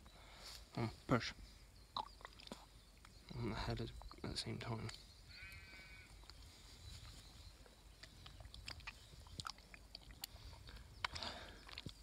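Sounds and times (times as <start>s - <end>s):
wet squelching and soft clicks: 2.0s - 5.0s, 7.6s - 12.0s.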